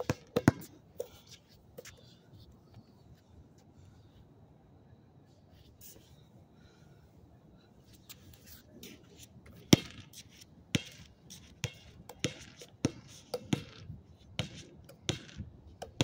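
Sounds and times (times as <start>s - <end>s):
basketball bouncing on pavement: 0.0s - 0.8s, 9.6s - 16.0s.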